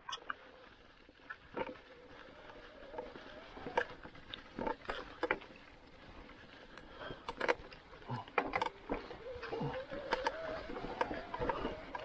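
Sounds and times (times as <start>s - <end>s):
tyres rustling over dry leaves: 0.0s - 12.0s
electric motor whine: 8.5s - 12.0s.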